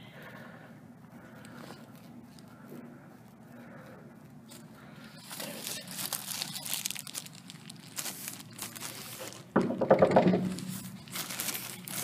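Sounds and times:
plastic bag crinkling: 4.3s - 12.0s
knocking on wooden door: 9.6s - 10.5s.

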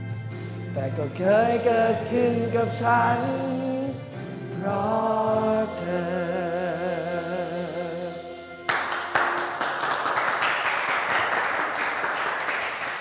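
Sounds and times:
person singing with vibrato: 0.0s - 9.1s
steady backing chord: 0.0s - 11.4s
group applauding: 8.7s - 13.0s.

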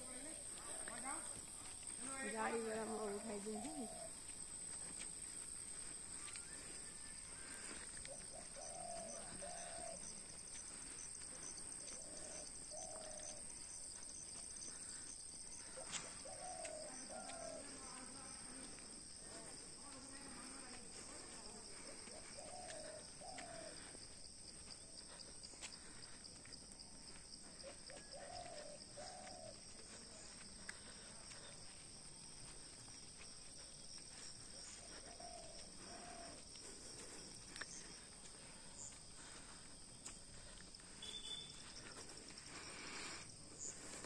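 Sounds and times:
faint footsteps on brick paving: 0.0s - 44.0s
high insect drone: 0.0s - 44.0s.

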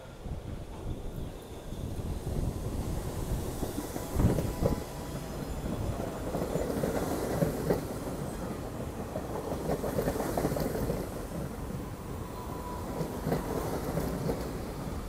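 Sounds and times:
subway train rumbling: 0.0s - 15.0s
wheels clacking over rail joints: 3.9s - 11.9s.

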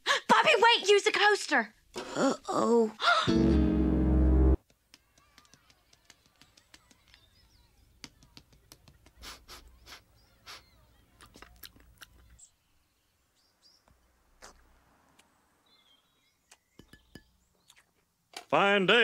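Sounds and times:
faint birdsong chirps: 6.3s - 8.0s, 9.6s - 11.3s, 12.0s - 18.1s.

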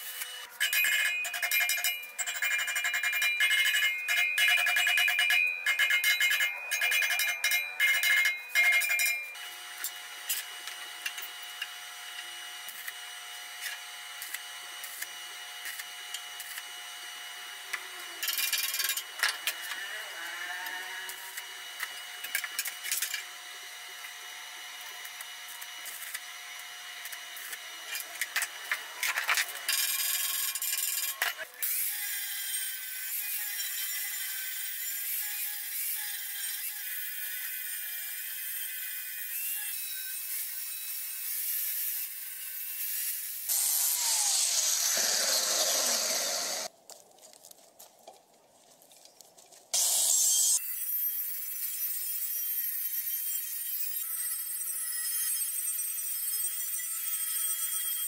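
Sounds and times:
hammer striking steel: 0.6s - 9.4s.

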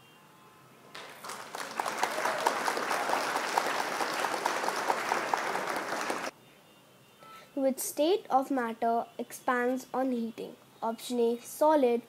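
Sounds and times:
crowd clapping: 0.9s - 6.3s.

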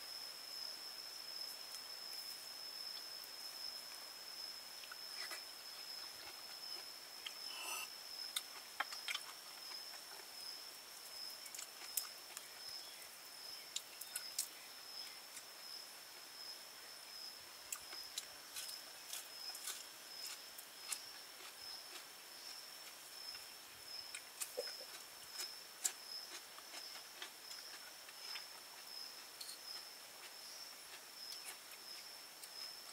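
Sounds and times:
sucking sounds: 7.4s - 7.9s
high-pitched insect drone: 7.4s - 8.0s.

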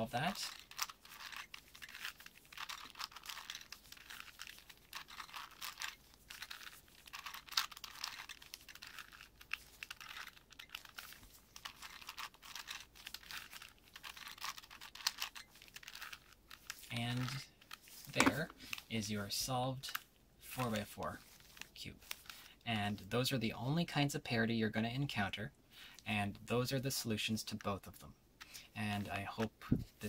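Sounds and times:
puzzle cube clicking and rattling: 0.2s - 18.9s.

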